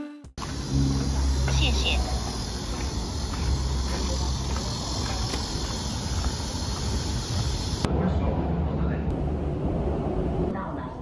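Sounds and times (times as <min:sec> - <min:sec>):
insects buzzing in trees: 0:00.4 - 0:07.9.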